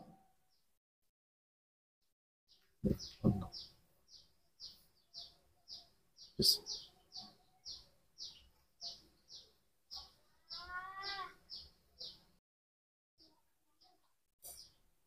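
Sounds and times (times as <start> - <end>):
small bird chirping: 2.5 - 12.4.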